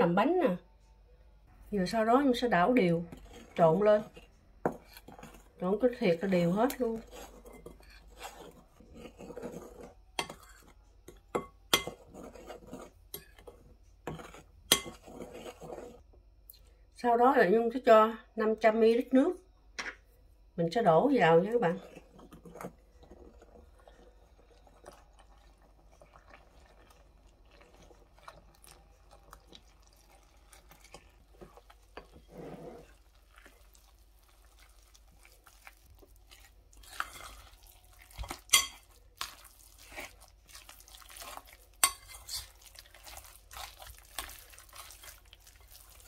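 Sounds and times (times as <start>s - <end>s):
wet dough squelching: 21.5s - 46.0s.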